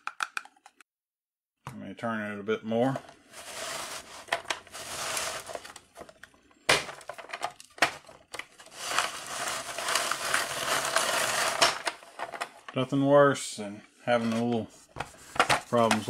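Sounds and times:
plastic scraping: 0:02.8 - 0:12.8, 0:14.1 - 0:16.0.

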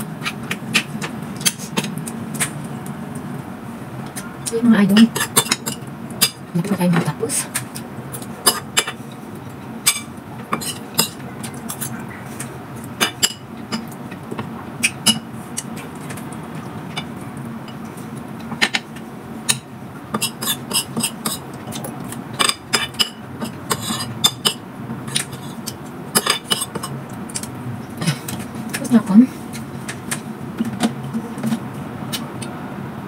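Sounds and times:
metal spoon scraping ceramic bowl: 0:20.2 - 0:21.4, 0:22.7 - 0:24.6.

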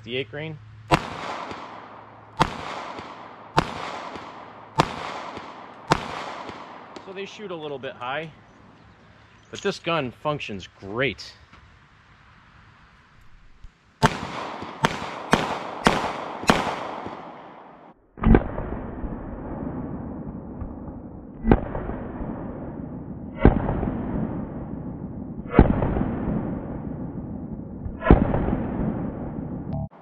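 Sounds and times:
revolver shots echoing: 0:00.9 - 0:07.6, 0:14.0 - 0:18.7.

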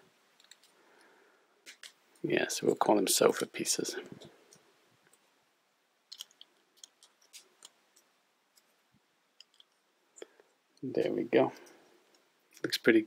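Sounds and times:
plastic building blocks clicking: 0:06.1 - 0:08.7, 0:09.4 - 0:09.8.

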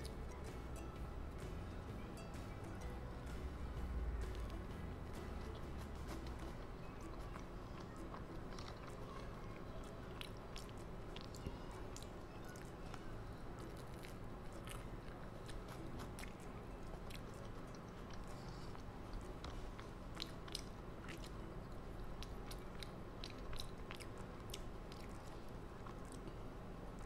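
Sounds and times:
faint steady hum: 0:00.0 - 0:27.0
crunchy snack chewing: 0:05.4 - 0:26.4
wet mouth clicks: 0:13.6 - 0:26.3.

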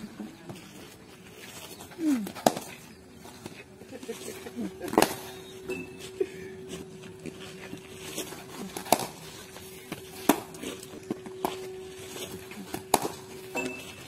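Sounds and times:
faint steady hum: 0:00.0 - 0:14.0
cricket bat striking ball: 0:12.8 - 0:13.2.

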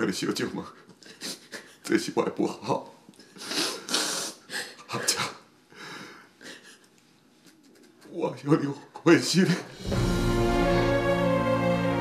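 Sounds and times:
music of long held notes: 0:09.8 - 0:12.0.

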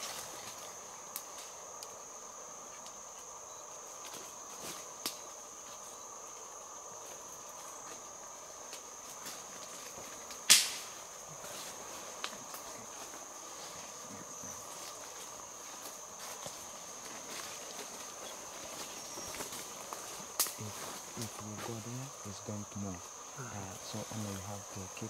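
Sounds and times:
high-pitched insect drone: 0:00.0 - 0:25.0
low insect buzzing: 0:00.0 - 0:25.0
footsteps on forest floor: 0:11.4 - 0:21.8.

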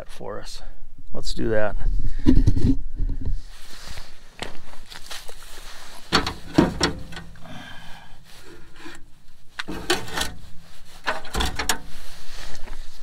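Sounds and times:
battery scraping against metal tray: 0:08.4 - 0:11.9.

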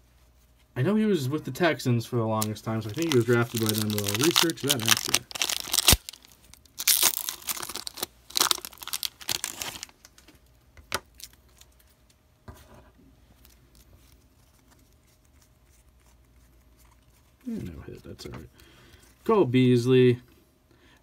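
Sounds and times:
foil wrapper crinkling and tearing: 0:02.4 - 0:10.3, 0:11.1 - 0:11.9
cards being handled: 0:02.4 - 0:10.4.

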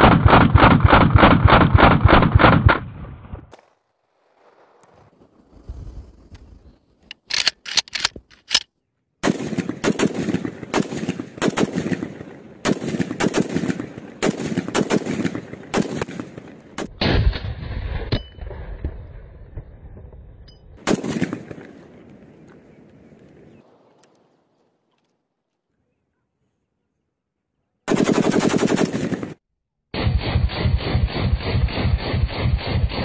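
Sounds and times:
rifle gunshots: 0:07.1 - 0:08.6, 0:09.2 - 0:18.1, 0:20.8 - 0:21.8, 0:27.9 - 0:29.4.

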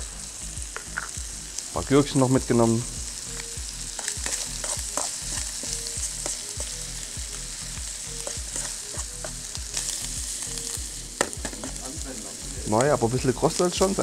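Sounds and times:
meat sizzling in a frying pan: 0:00.0 - 0:14.0
utensil clicking against pan: 0:04.0 - 0:06.7.

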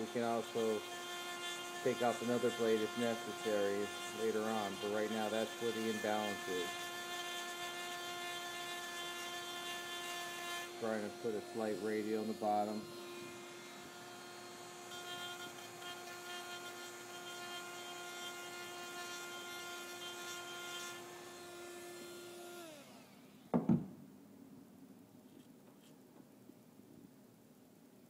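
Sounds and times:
rotary tool whining: 0:00.0 - 0:23.5
thump: 0:23.5 - 0:24.0.

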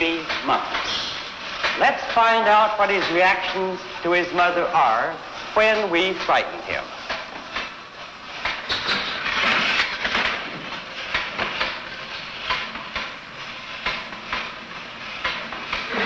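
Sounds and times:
mechanical clatter: 0:07.0 - 0:16.0.

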